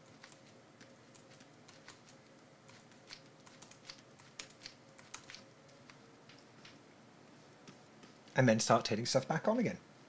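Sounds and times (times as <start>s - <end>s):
keyboard keystrokes clicking: 2.7s - 6.8s.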